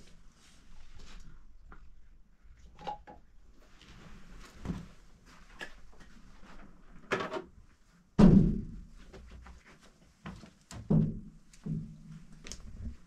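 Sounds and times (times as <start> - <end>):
loud thump: 8.2 - 8.8.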